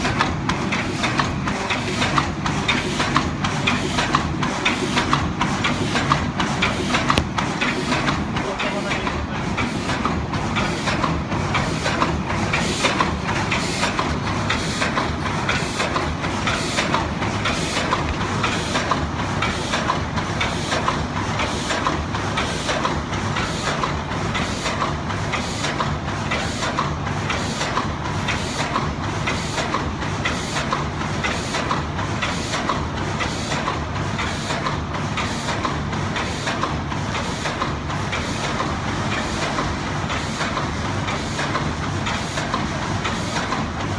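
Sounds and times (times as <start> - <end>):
machine mechanism clacking: 0.0 - 43.9.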